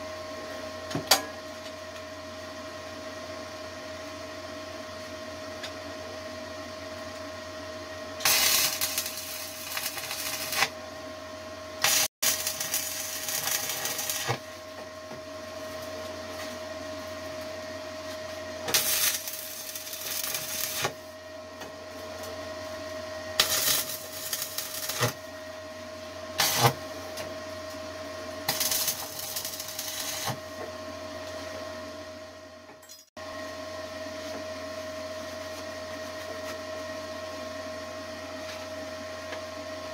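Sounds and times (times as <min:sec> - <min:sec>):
welding arc crackling: 0:08.2 - 0:10.7, 0:11.8 - 0:14.5, 0:18.6 - 0:21.1, 0:23.4 - 0:25.2, 0:26.4 - 0:26.8, 0:28.4 - 0:30.4
steady hum: 0:08.2 - 0:32.6.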